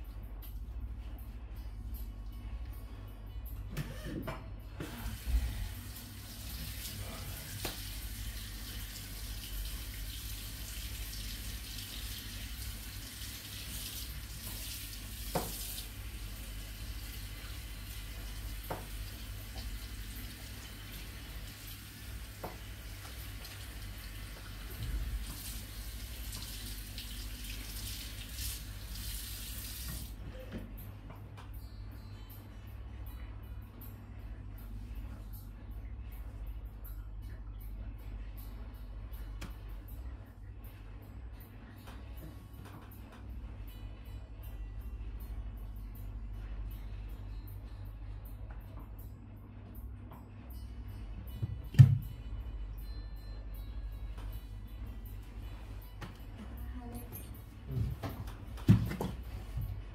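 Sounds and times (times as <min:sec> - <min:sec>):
water spraying into basin: 0:05.2 - 0:16.1, 0:25.2 - 0:30.1.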